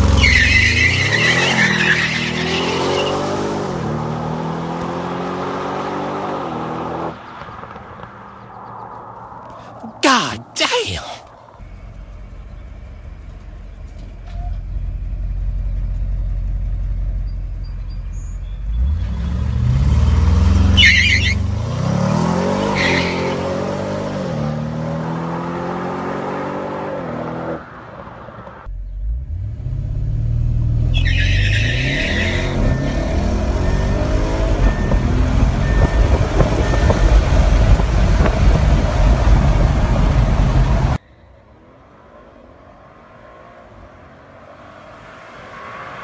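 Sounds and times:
car engine accelerating hard: 28.9 - 41.0.

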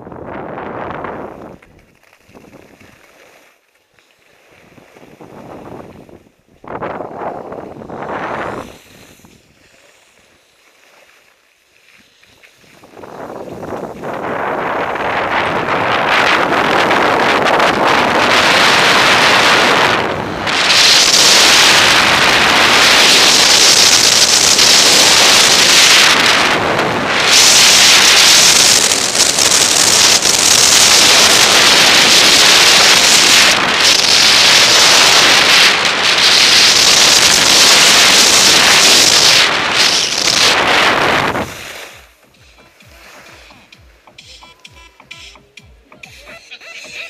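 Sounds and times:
wind on microphone: 0.0 - 3.2, 4.5 - 10.3, 12.3 - 44.2
skis scraping on snow: 0.8 - 43.6.

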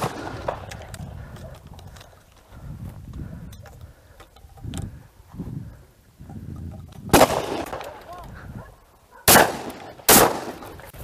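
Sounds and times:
microphone movement noise: 0.0 - 7.2
low wind rumble: 0.0 - 9.7
shotgun shot with echo: 9.3 - 10.6.

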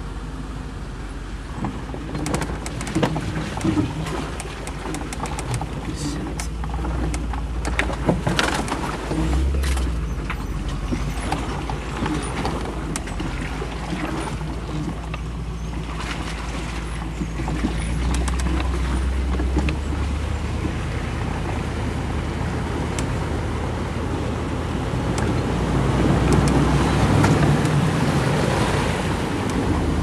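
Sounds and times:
vehicle engine running: 0.0 - 30.0
knocks and rattles: 1.5 - 21.7.

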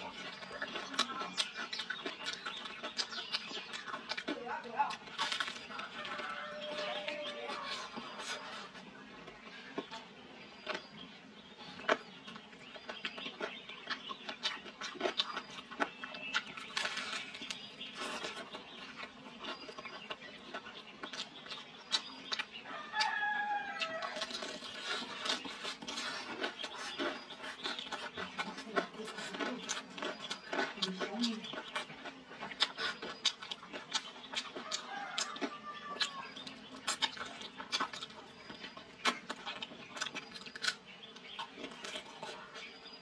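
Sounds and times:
chewing crispy chicken: 0.0 - 43.0
rooster crowing: 5.9 - 7.9, 22.7 - 24.3, 34.6 - 36.3.

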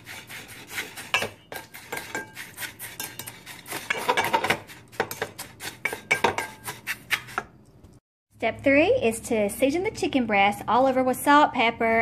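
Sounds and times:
wooden spoon scraping metal bowl: 0.0 - 7.6.

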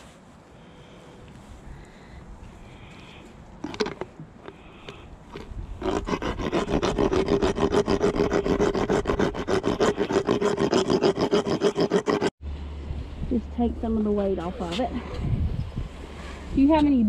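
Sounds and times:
file rasping teeth: 4.5 - 12.3.

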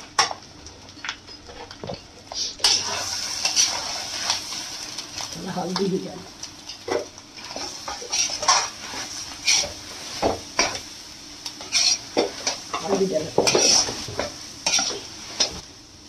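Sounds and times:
filling sizzling in oil: 2.3 - 16.0
metal spatula scraping a pan: 2.6 - 4.6, 7.4 - 10.8, 11.6 - 15.6.

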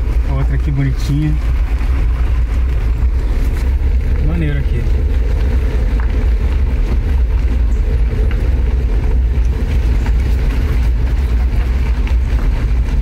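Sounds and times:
motorhome engine and road rumble: 0.0 - 13.0.

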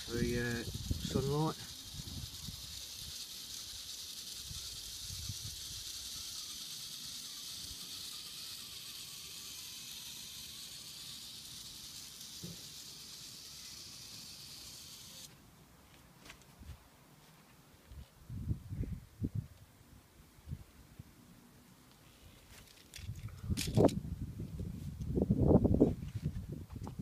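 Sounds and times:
toy car motor whirring: 0.0 - 15.3, 22.6 - 24.0.

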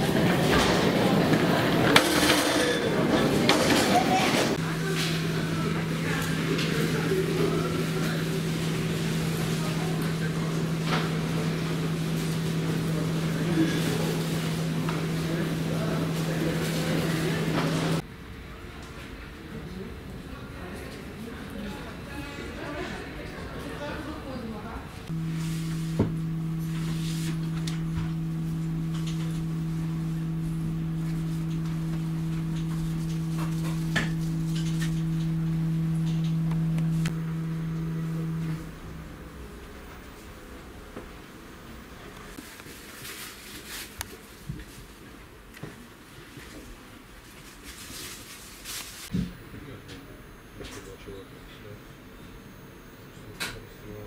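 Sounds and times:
train equipment humming: 0.0 - 18.0, 25.0 - 42.4.

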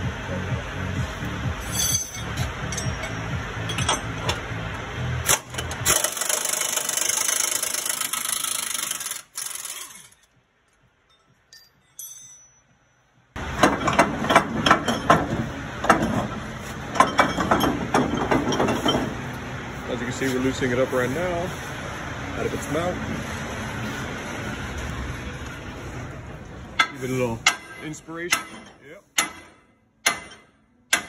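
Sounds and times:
metal tool rattling and hissing: 1.6 - 4.4, 13.5 - 21.8
sharp metal knocks: 13.4 - 19.2, 26.8 - 31.0.

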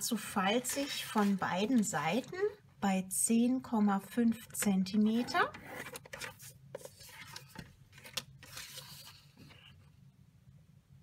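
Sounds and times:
cardstock sliding and rustling: 0.7 - 1.9, 5.8 - 9.8.

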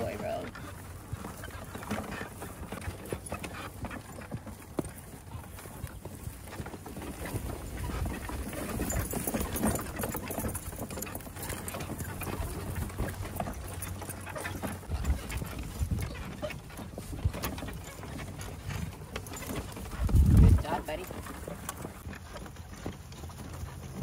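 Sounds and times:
cart wheels rumbling and rattling: 0.0 - 24.0
horse hooves clip-clopping: 0.0 - 24.0.

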